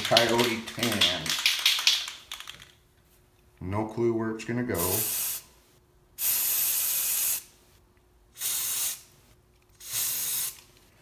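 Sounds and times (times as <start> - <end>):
aerosol spray paint bursts: 4.8 - 5.4, 6.2 - 7.5, 8.4 - 9.0, 9.8 - 10.6.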